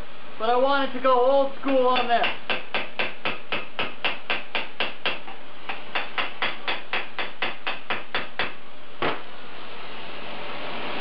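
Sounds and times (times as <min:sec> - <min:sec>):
hammer beating steel pipe: 0:02.0 - 0:09.2.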